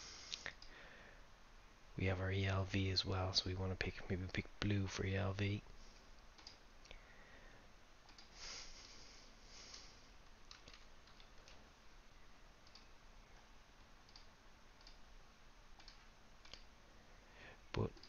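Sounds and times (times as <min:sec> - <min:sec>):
computer mouse clicks: 0:05.9 - 0:07.0, 0:08.0 - 0:09.0, 0:09.7 - 0:11.6, 0:12.6 - 0:15.0, 0:15.7 - 0:16.7
keyboard keystrokes: 0:10.5 - 0:11.6.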